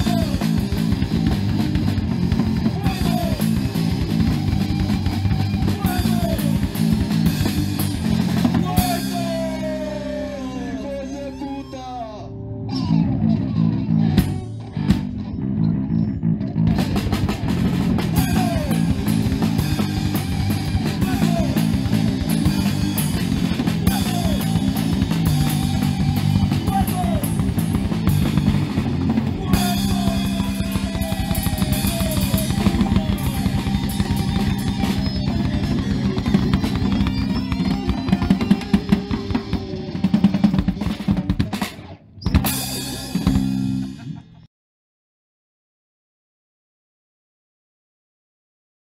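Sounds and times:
punk rock band playing: 0.0s - 44.5s.

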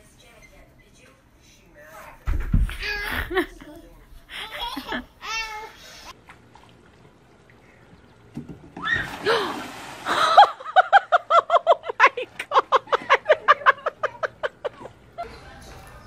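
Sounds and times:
splash into swimming pool: 8.7s - 10.6s.

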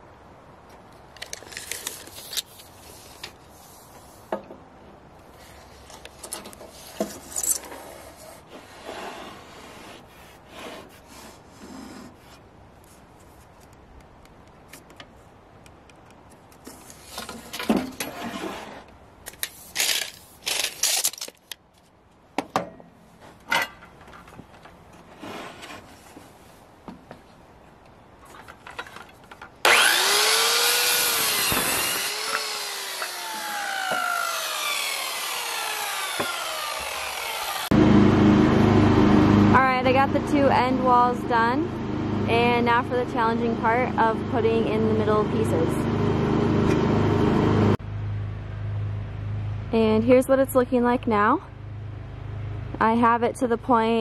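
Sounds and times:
wood rubbing and scraping on metal: 5.3s - 13.5s, 23.2s - 26.4s
electric circular saw starting: 29.6s - 39.5s.

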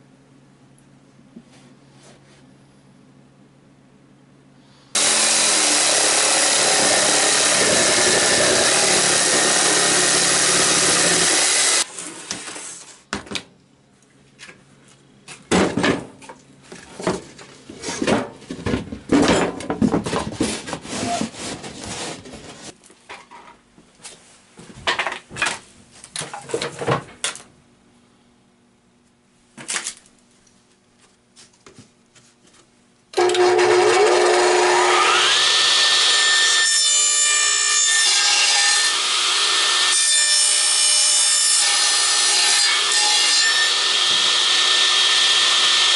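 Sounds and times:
saw motor whine: 5.0s - 11.9s, 33.2s - 40.0s
jigsaw cutting plywood: 5.0s - 12.7s, 33.2s - 42.9s, 43.6s - 45.9s
knocks and scrapes on plywood: 15.5s - 22.8s.

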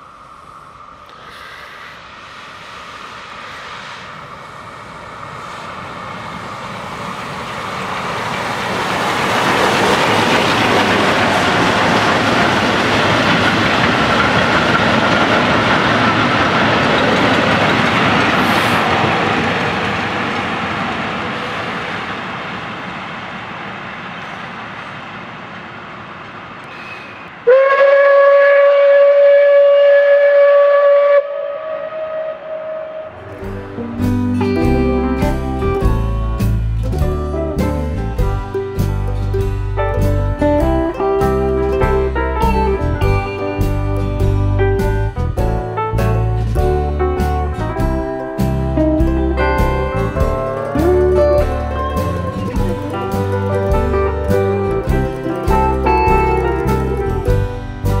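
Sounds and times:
steam train passing: 0.0s - 58.0s
steam whistle long note: 26.7s - 33.4s.

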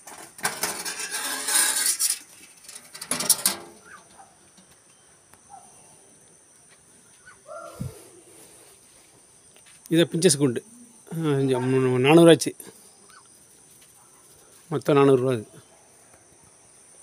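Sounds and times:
wire-mesh cage rattling: 0.0s - 4.7s
small birds chirping: 3.8s - 8.8s, 12.7s - 14.6s.

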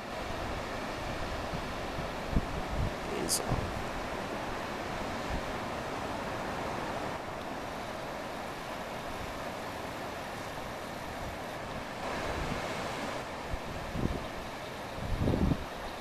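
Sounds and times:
ocean surf breaking: 0.0s - 15.9s
wind buffeting the microphone: 0.3s - 5.6s, 12.1s - 15.8s.

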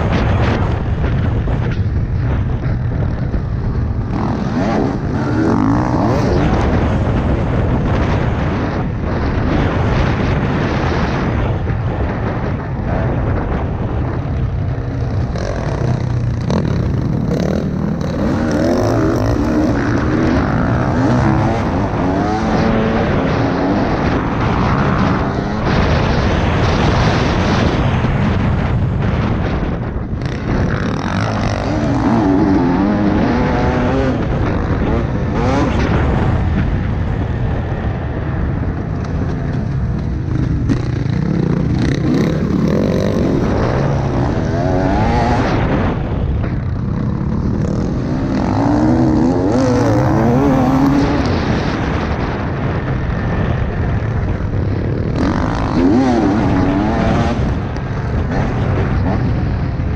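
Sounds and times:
dirt bike engine revving: 0.0s - 59.9s
wind buffeting microphone: 0.0s - 59.9s.

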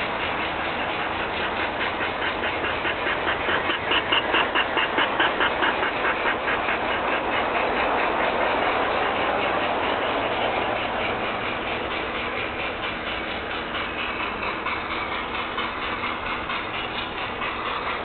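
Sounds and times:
model train running: 0.0s - 18.0s.

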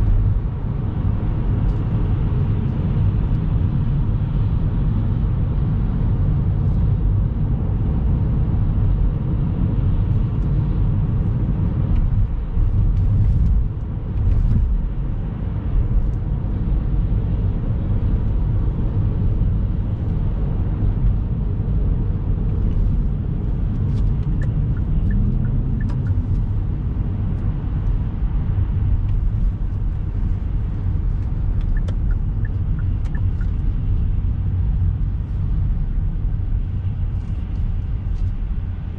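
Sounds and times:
car rumble from inside cabin: 0.0s - 38.9s.

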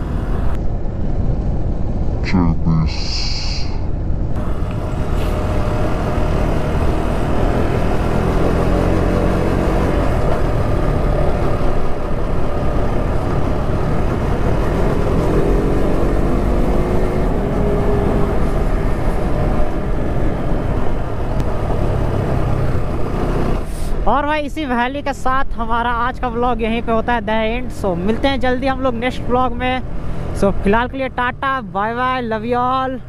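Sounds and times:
wind rush on microphone: 0.0s - 2.3s, 3.0s - 24.0s.

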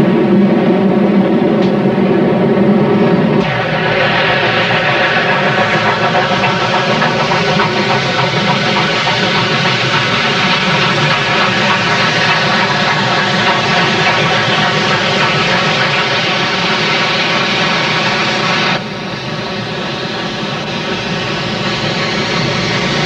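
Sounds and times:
steam locomotive exhaust rushing: 0.0s - 23.0s.

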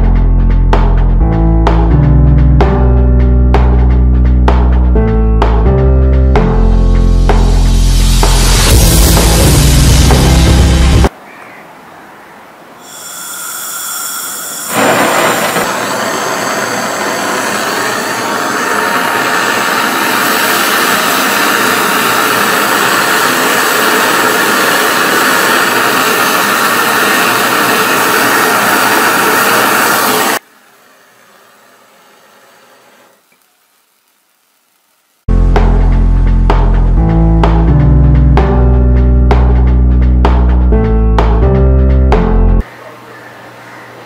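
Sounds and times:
gas torch flame hiss: 12.9s - 30.4s.

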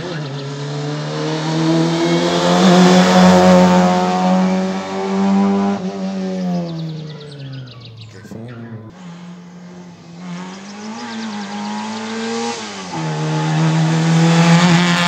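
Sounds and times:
race car engine at high revs: 0.0s - 15.0s.

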